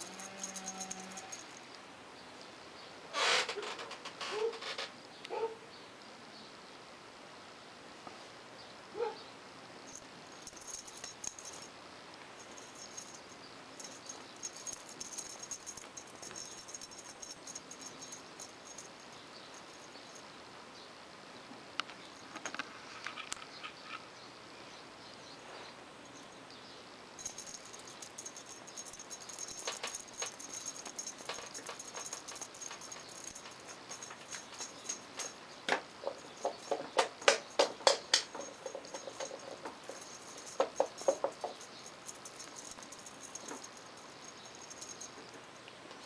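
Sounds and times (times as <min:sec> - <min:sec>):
rapid loud ticks: 0:27.2 - 0:45.0.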